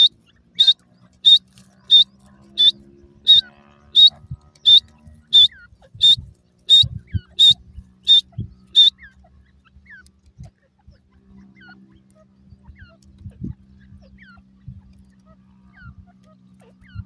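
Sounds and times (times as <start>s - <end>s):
down-slurred whistles: 0.0s - 8.9s
shrill bird call: 0.0s - 9.2s.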